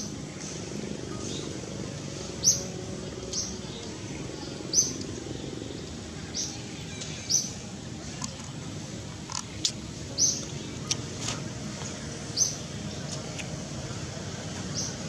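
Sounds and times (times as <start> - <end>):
low forest hum: 0.0 - 15.0
bird chirping: 2.4 - 5.1, 10.1 - 11.1, 14.7 - 15.0.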